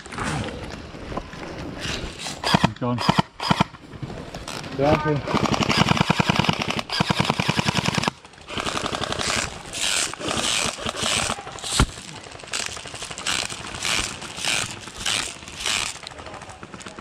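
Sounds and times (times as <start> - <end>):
airsoft gun firing full-auto: 2.4 - 3.7, 5.3 - 16.0.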